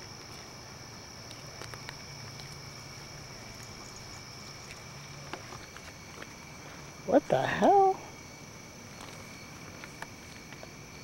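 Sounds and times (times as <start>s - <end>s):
light footsteps on ground: 0.0s - 7.0s, 8.8s - 11.0s
crickets chirring: 0.0s - 11.0s.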